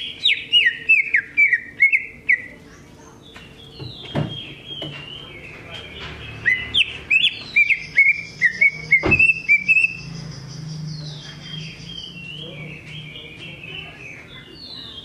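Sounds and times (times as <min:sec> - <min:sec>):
bird singing whistled notes: 0:00.0 - 0:02.6, 0:06.3 - 0:15.0.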